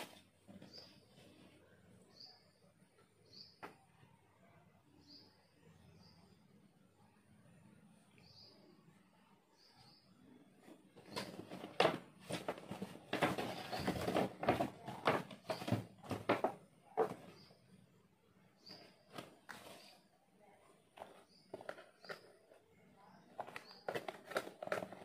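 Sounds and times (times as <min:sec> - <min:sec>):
faint bird chirps: 0:00.1 - 0:11.4
objects rustling and knocking: 0:10.6 - 0:17.6, 0:18.6 - 0:20.0, 0:20.9 - 0:25.0.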